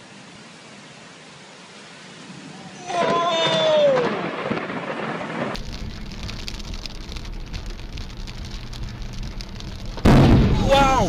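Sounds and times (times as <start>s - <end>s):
heavy rain: 0.0s - 11.0s
low road rumble: 0.1s - 11.0s
raindrops pattering on windshield: 5.5s - 11.0s.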